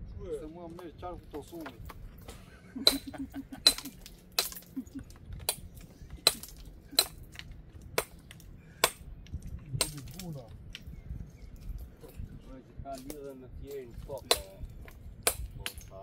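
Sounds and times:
hammer striking stone: 1.3 - 4.7, 5.4 - 7.4, 8.0 - 9.1, 9.8 - 10.3, 14.1 - 16.0.

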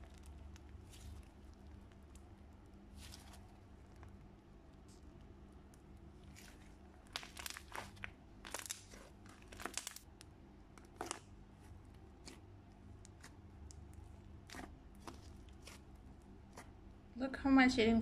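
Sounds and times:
slime crackling and popping: 0.0 - 16.8.

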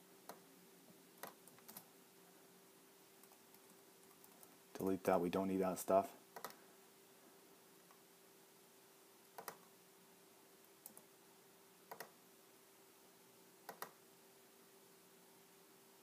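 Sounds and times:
faint steady hum: 0.0 - 16.0
computer mouse clicks: 1.2 - 1.9, 6.4 - 6.6, 9.3 - 9.7, 10.8 - 11.1, 11.9 - 12.2, 13.7 - 14.0.

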